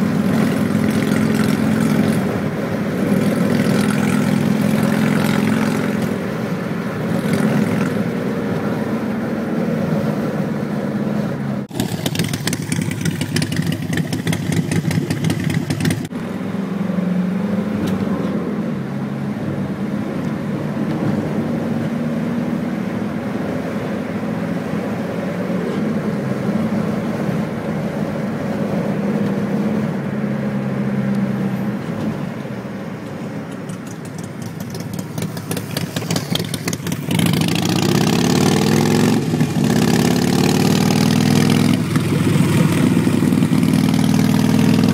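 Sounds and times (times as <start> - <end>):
motorcycle engine running: 0.0 - 8.2, 11.7 - 16.2, 33.6 - 44.9
wind rushing over microphone: 34.9 - 44.9.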